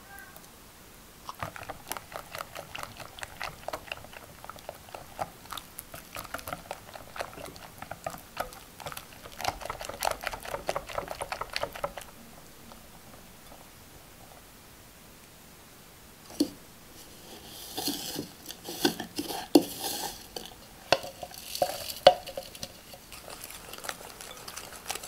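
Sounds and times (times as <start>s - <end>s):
whisk stirring thick mixture: 1.4s - 12.2s, 16.3s - 25.0s.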